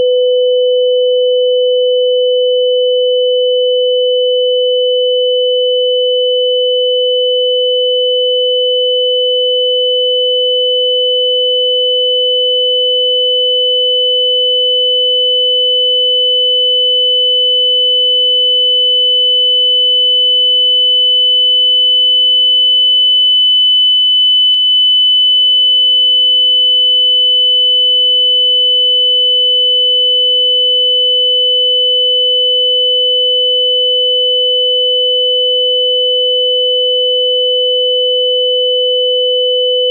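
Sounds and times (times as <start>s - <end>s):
lower pure tone: 0.0s - 18.4s, 36.2s - 39.9s.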